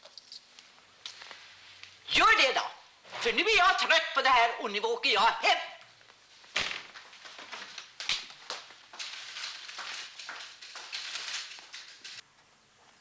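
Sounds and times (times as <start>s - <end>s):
rustling and crackling: 5.9s - 13.0s.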